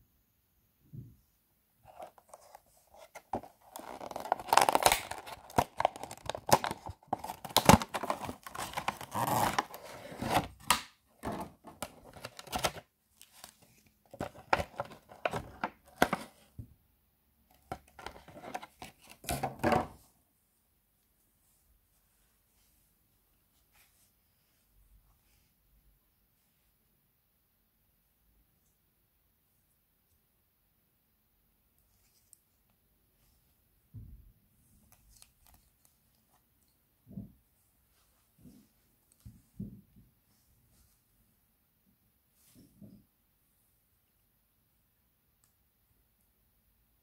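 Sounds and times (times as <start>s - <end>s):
plastic blister pack tearing: 3.4s - 12.8s.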